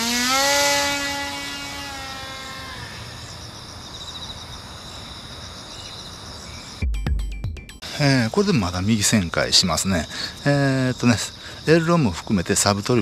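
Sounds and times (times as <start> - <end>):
electric motor and propeller whirring: 0.0 - 3.4
insect chirping: 0.3 - 6.9, 7.8 - 13.0.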